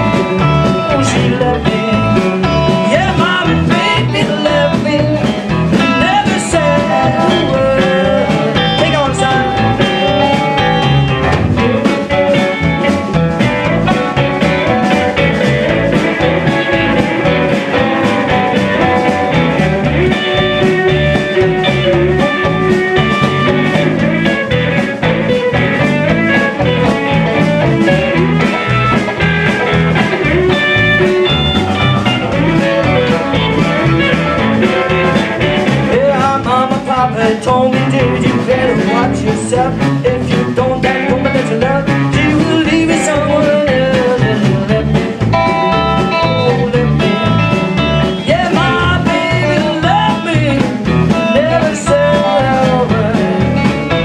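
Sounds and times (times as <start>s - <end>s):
drum kit: 0.0s - 54.0s
electric bass: 0.0s - 54.0s
electric guitars: 0.0s - 54.0s.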